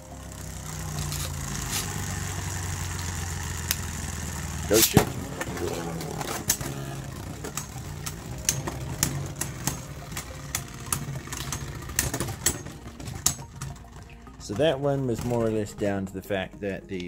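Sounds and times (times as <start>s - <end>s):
spinning tops clacking: 0.0s - 16.3s
spinning tops whirring: 0.0s - 16.5s.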